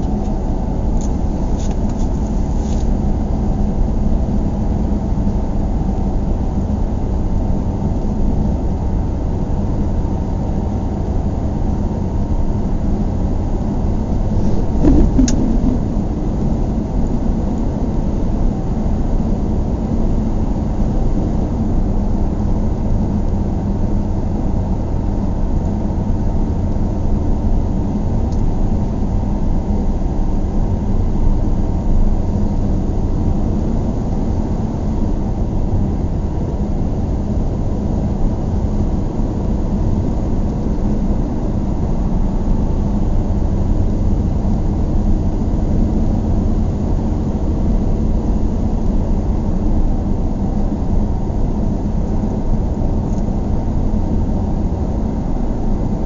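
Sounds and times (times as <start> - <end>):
car engine and road rumble: 0.0 - 56.0
car bump: 14.4 - 16.0
sharp click: 14.6 - 15.8.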